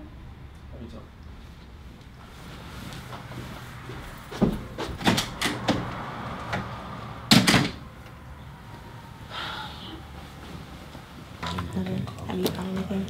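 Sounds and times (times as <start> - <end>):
faint rustle: 1.3 - 5.0
knocks and thumps: 4.3 - 6.7.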